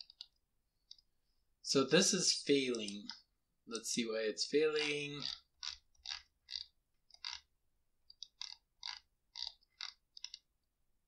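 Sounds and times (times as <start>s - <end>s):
mouse and keyboard clicks: 0.0s - 1.1s, 4.8s - 10.6s.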